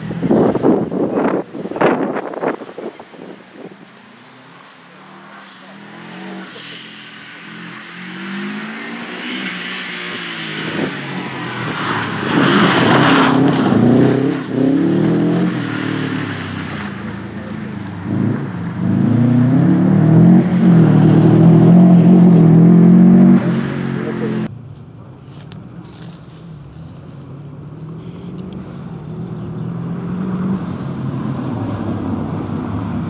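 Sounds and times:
car engine revving hard: 5.1 - 24.5.

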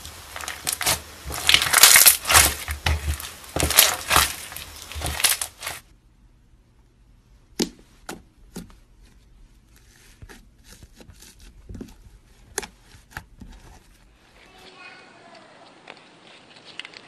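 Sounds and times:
slime popping: 0.0 - 5.8
crunchy slime crackling: 0.0 - 5.9.

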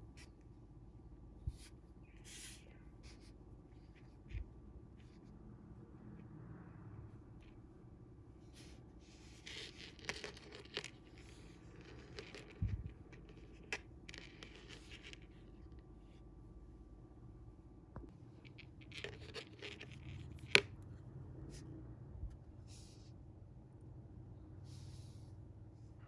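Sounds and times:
fingers handling fishing line: 9.3 - 15.8, 18.4 - 20.8.

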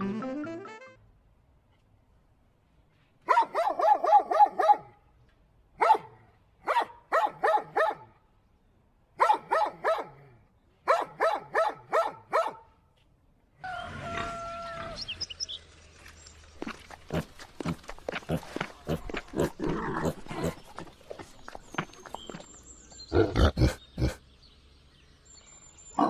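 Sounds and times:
dog barking: 3.3 - 5.0, 5.8 - 8.1, 9.2 - 12.8.

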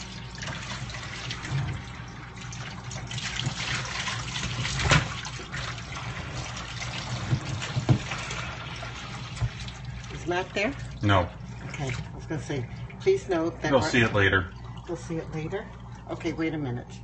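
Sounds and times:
water spraying and splashing: 0.0 - 10.8.

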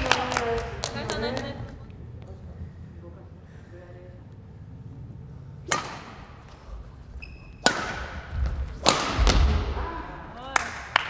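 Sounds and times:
racket hitting shuttlecock: 5.6 - 6.6, 7.4 - 9.9
shoe squeak: 7.0 - 7.7.

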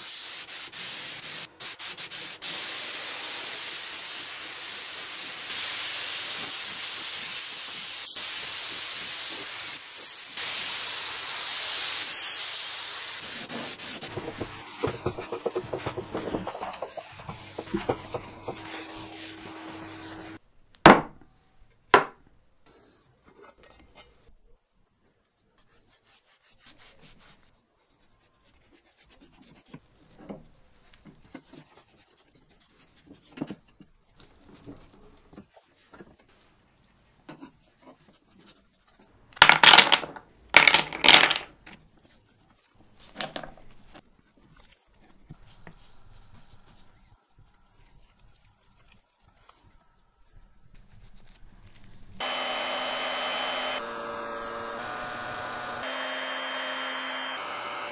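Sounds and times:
spray gun hissing: 0.0 - 14.1
cloth rubbing on wood: 13.2 - 20.4.

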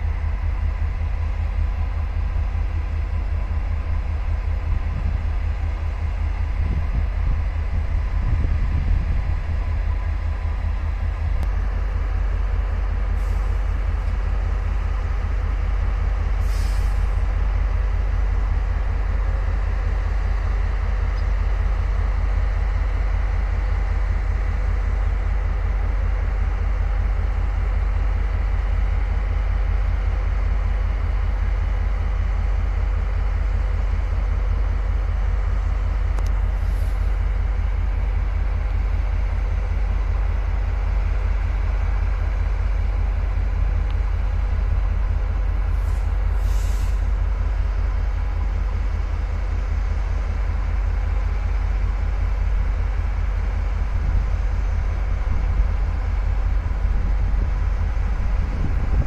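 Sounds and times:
diesel locomotive idling: 0.0 - 59.0
air brake hisses: 16.4 - 17.2, 36.6 - 37.1, 45.7 - 47.2.

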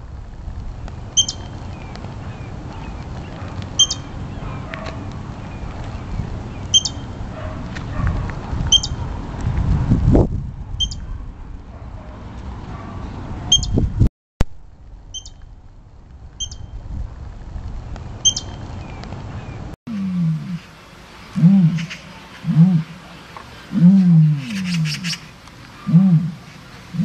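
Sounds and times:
low rumbling noise: 0.0 - 27.0
high animal chirps: 1.2 - 1.5, 3.8 - 4.1, 6.7 - 7.0, 8.7 - 9.0, 10.8 - 11.0, 15.2 - 15.4, 16.4 - 16.7, 18.2 - 18.6, 19.9 - 27.0
low animal call: 19.9 - 27.0.

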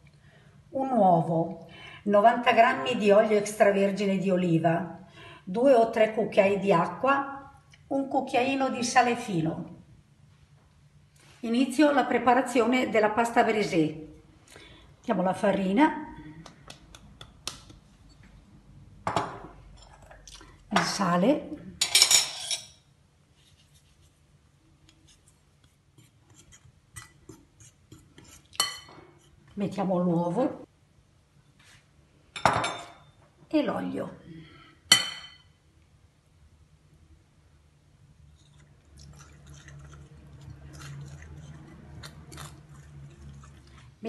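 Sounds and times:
fingers crumbling dough in bowl: 16.4 - 18.1
fingers mixing flour in a bowl: 23.3 - 29.8.

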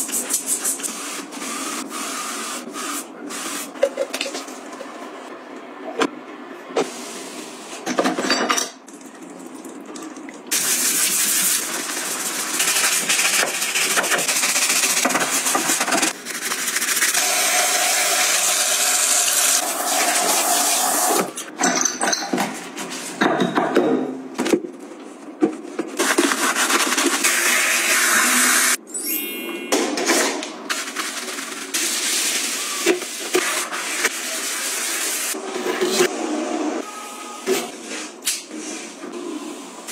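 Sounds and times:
brush scrubbing plastic: 10.6 - 17.4, 26.0 - 27.6, 30.7 - 35.4.

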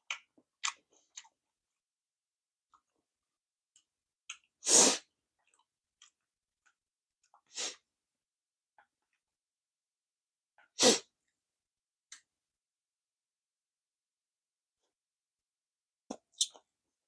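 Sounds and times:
sharp puffs of breath: 4.6 - 5.1.

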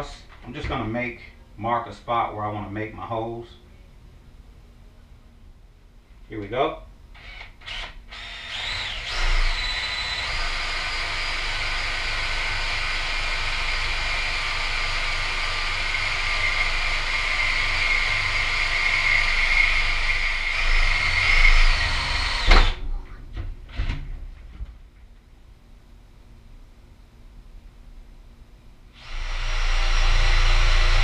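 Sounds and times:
cordless drill boring metal: 7.2 - 22.8, 29.0 - 31.0.

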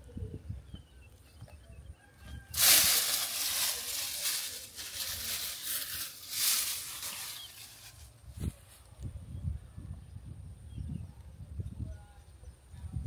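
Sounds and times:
leaves rustling: 2.5 - 8.9.

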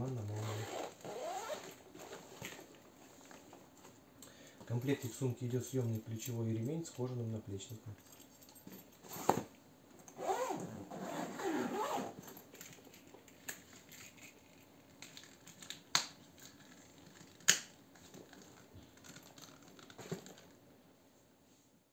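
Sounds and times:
leather strap rubbing and squeaking: 0.1 - 2.6, 10.2 - 12.3.

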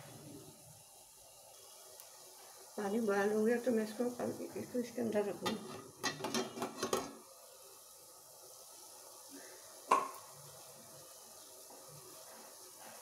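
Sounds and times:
water boiling hiss: 0.0 - 13.0
metal clink of stand on pot: 5.4 - 7.1.

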